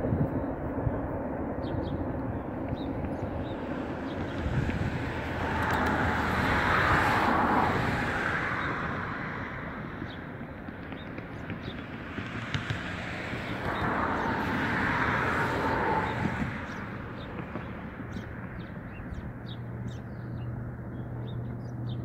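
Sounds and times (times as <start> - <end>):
broad rushing noise: 0.0 - 20.0
small birds chirping: 1.6 - 5.9, 9.9 - 14.4, 15.9 - 22.0.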